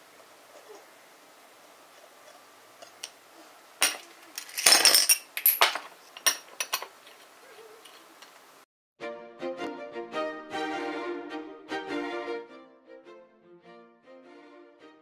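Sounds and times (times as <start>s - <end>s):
ice and spoon clinking in bowl: 3.8s - 6.9s.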